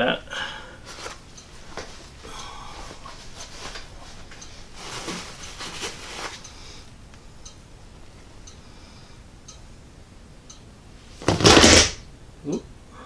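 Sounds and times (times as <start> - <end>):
rummaging in fabric backpack: 2.8 - 6.4.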